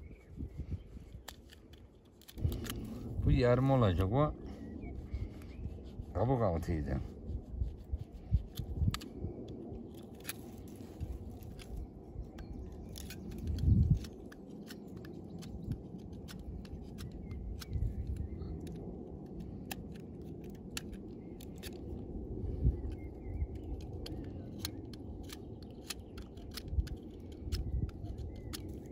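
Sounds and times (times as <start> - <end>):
low rumble: 0.0 - 28.9
hand tools cutting branch: 1.1 - 4.1, 8.2 - 22.0, 22.8 - 28.9.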